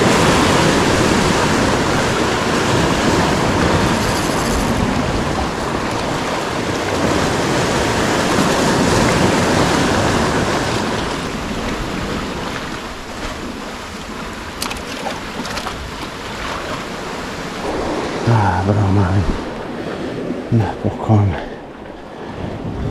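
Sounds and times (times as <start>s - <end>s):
surf breaking against rocks: 0.0s - 22.9s.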